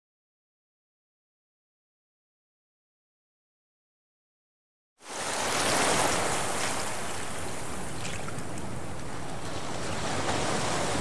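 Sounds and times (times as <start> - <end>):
ocean waves: 5.0 - 11.0
wind: 5.0 - 11.0.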